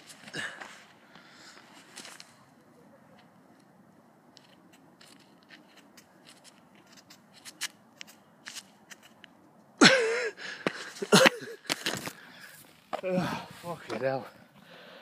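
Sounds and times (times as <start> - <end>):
short effortful breaths: 0.2 - 1.8, 12.0 - 13.8, 14.5 - 15.0
man grunting: 13.0 - 13.5.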